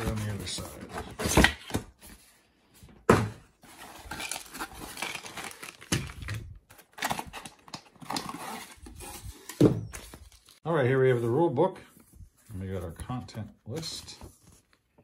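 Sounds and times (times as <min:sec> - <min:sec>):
packaging rustling and crinkling: 0:03.6 - 0:10.6.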